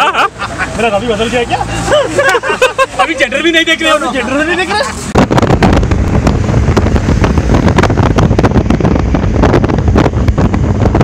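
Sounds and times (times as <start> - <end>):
low rumble of motorcycle ride: 0.0 - 11.0
wind buffeting microphone: 4.9 - 11.0.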